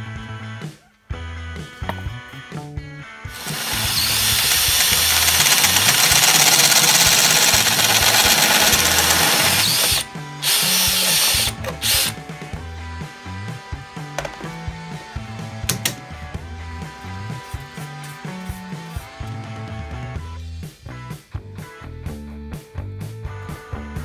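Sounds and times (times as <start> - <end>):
background music with bass line: 0.0 - 24.0
drill grinding through metal: 3.3 - 12.3.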